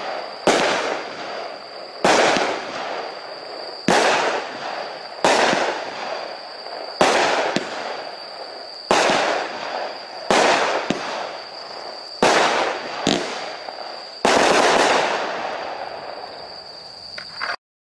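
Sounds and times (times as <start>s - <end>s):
small firework pops: 0.0s - 3.0s, 6.9s - 8.1s, 8.9s - 11.4s, 12.2s - 15.2s
loud firework bangs: 0.0s - 16.8s.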